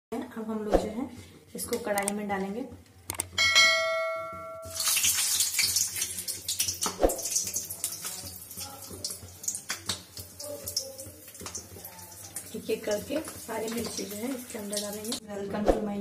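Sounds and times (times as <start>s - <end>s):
short bell chime: 3.4s - 4.9s
chillies sizzling in hot oil: 4.6s - 15.2s.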